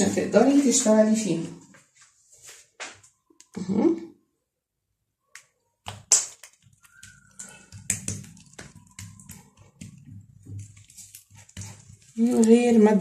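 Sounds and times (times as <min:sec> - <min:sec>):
hands slapping dough on counter: 0:05.3 - 0:12.5.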